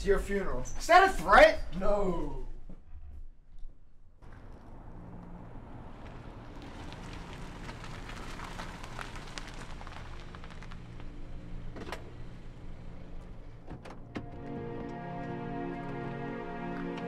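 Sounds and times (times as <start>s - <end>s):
car engine humming: 4.2s - 17.0s
dense crackle: 6.0s - 11.6s.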